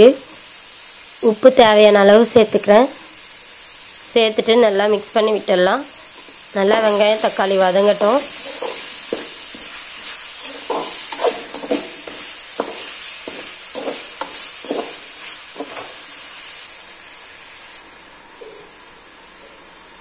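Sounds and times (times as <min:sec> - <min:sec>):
masala sizzling in oil: 0:00.0 - 0:20.0
steel spoon scraping pan: 0:08.0 - 0:16.0.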